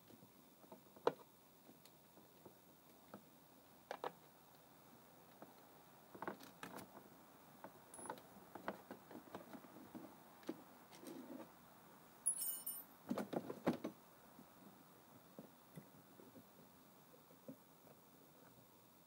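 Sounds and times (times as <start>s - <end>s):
high metallic jingle: 12.2s - 13.0s.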